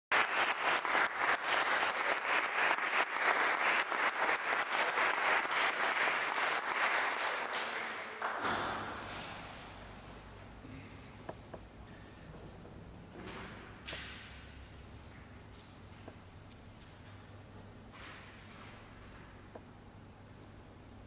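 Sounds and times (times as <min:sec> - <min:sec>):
audience applauding: 0:00.1 - 0:09.0.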